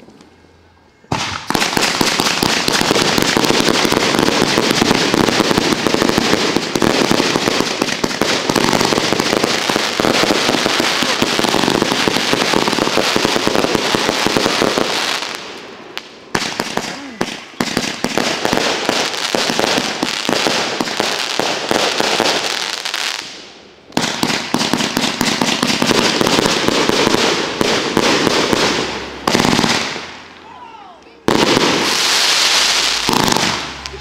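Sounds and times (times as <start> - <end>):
firework bang: 1.1 - 14.8, 31.3 - 34.0
firework barrage crackling: 1.1 - 34.0.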